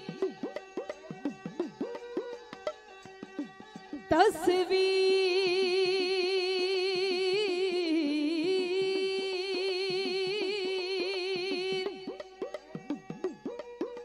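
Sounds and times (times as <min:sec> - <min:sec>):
hand drums: 0:00.0 - 0:04.2, 0:11.0 - 0:14.0.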